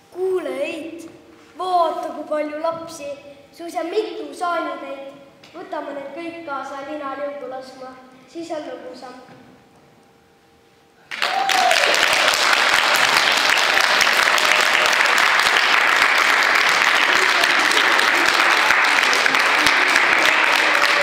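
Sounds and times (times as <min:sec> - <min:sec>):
children applauding: 0:11.1 - 0:21.0.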